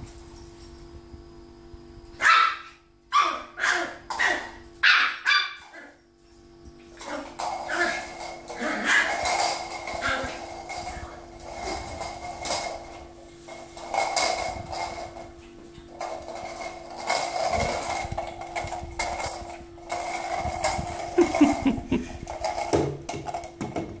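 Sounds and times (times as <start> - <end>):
faint steady hum: 0.0 - 24.0
puppy paws scrabbling on tiles: 4.1 - 24.0
toy ball clattering on tile floor: 6.9 - 24.0.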